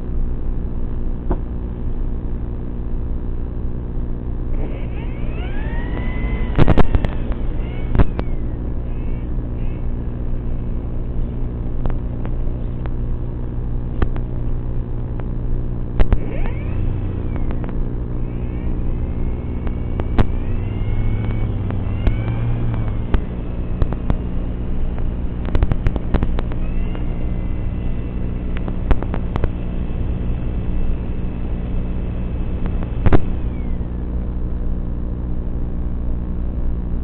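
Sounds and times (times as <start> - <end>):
high motor whine: 0.0 - 37.0
electric motor humming: 4.4 - 34.4
sharp clicks: 4.6 - 9.8, 16.0 - 24.3, 24.9 - 29.6, 32.6 - 33.8.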